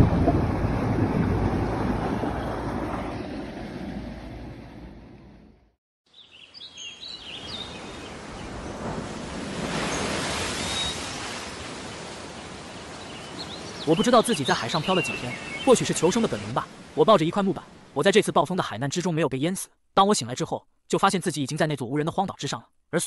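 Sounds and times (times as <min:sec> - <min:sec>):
rumbling sea noise: 0:00.0 - 0:05.7, 0:07.2 - 0:18.1
bird chirps: 0:06.1 - 0:08.6, 0:09.9 - 0:11.1, 0:13.0 - 0:16.0
gentle waves on a beach: 0:06.2 - 0:18.1.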